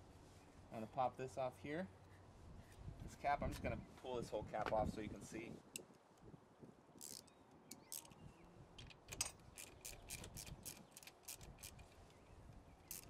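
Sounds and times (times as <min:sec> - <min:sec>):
ratchet wrench clicking: 0:07.0 - 0:08.2, 0:08.9 - 0:12.0.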